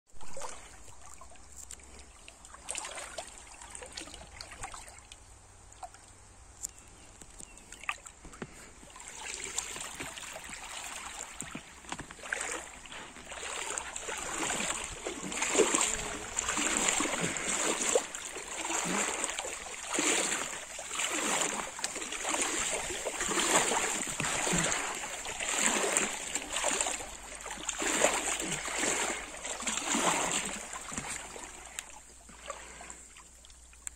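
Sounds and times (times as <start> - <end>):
water splashing around inflatable float: 0.1 - 6.6, 7.4 - 33.9.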